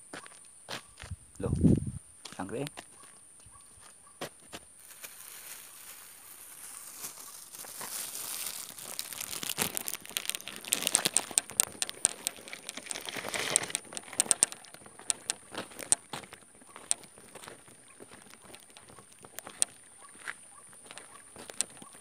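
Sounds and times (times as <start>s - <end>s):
plastic crinkling and crackling: 4.8s - 19.8s, 20.9s - 22.0s.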